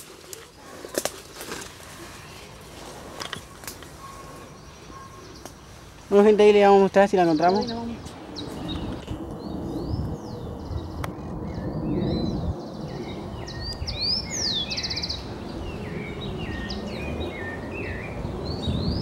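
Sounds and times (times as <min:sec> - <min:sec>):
songbirds calling: 0:00.0 - 0:19.0
low rumbling noise: 0:06.7 - 0:19.0.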